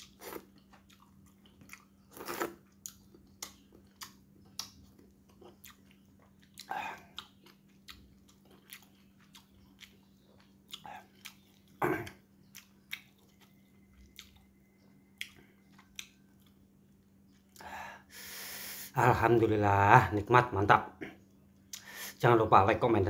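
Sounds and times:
person chewing and swallowing: 0.0s - 16.7s.

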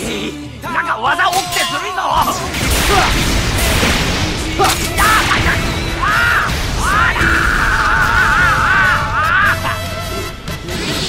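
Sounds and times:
loud music track: 2.2s - 11.0s
explosion sound effect: 2.5s - 9.6s.

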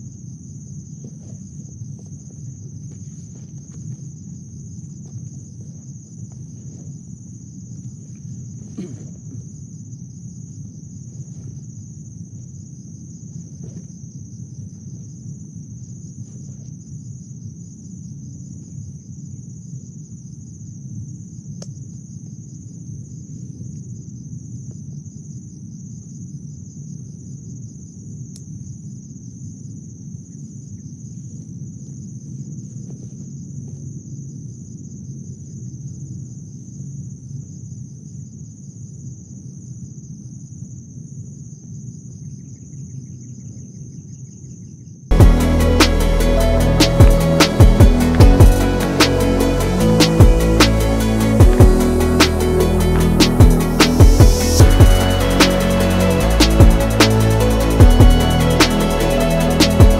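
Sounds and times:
crickets chirring: 0.0s - 59.9s
low steady rumble: 45.1s - 59.9s.

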